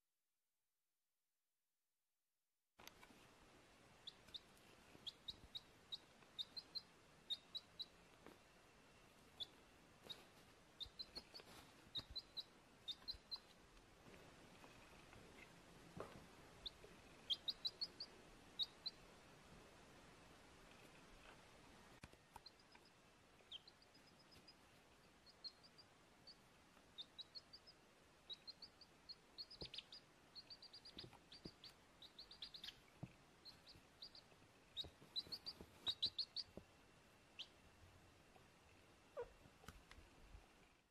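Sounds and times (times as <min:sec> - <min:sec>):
baby chick peeping: 0:03.9 - 0:40.8.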